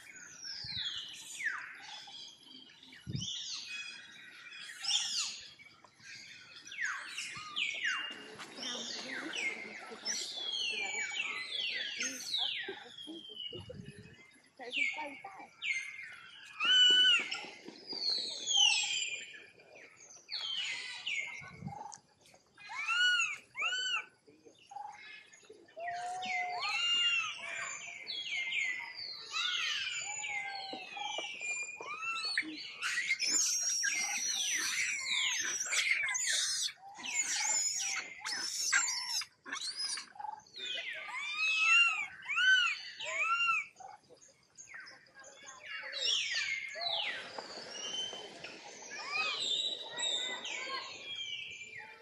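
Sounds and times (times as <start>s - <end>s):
baby monkey screaming: 22.7s - 24.1s, 31.9s - 40.1s, 41.1s - 43.7s
high-pitched animal calls: 31.9s - 40.3s, 40.9s - 43.8s.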